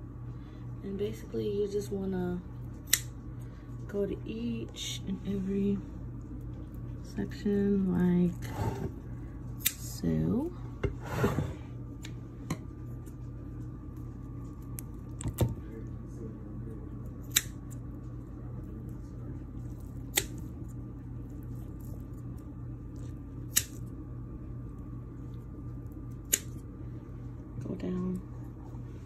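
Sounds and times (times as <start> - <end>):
low background hum: 0.0 - 29.0
scissors snipping twine: 2.8 - 3.1, 9.6 - 9.9, 17.2 - 17.8, 19.9 - 20.5, 23.5 - 23.8, 26.1 - 26.6.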